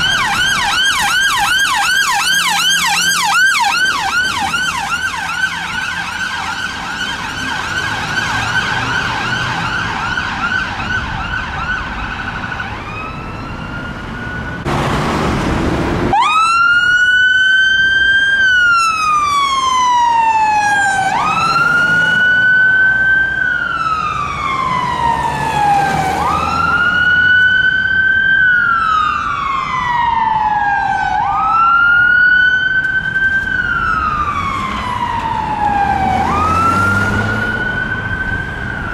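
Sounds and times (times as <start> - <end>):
ambulance siren warbling: 0.0 - 14.8, 15.9 - 38.9
fire engine siren wailing: 0.0 - 38.9.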